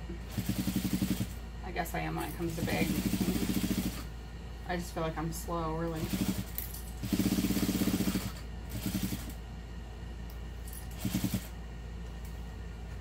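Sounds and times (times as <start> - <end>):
steady low hum: 0.0 - 13.0
sewing machine stitching: 0.3 - 1.4, 2.5 - 4.1, 5.9 - 9.4, 10.9 - 11.5.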